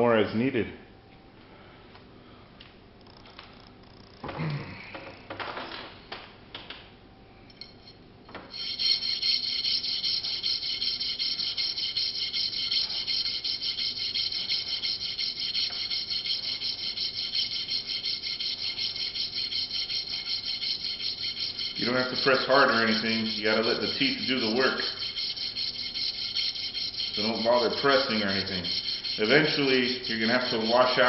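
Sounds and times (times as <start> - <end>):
metal washer rasping on a file: 8.5 - 31.0.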